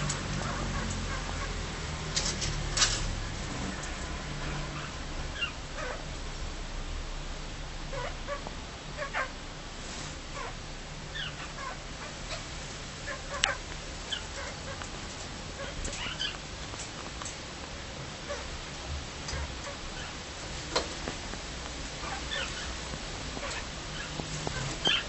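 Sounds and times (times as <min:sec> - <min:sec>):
cockatiel chirping and squeaking: 0:15.6 - 0:16.4, 0:22.0 - 0:22.7, 0:23.4 - 0:25.0.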